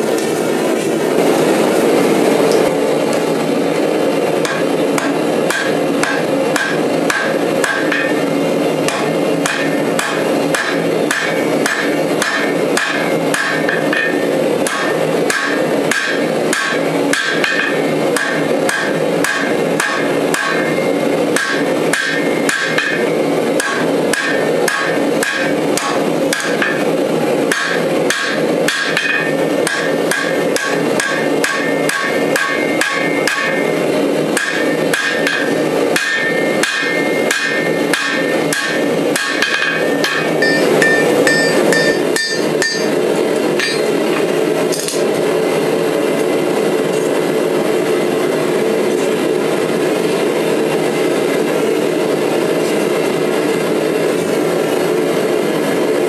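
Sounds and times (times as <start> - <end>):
steady rushing noise: 0.0 - 13.4
hammer striking steel on anvil: 4.4 - 45.2.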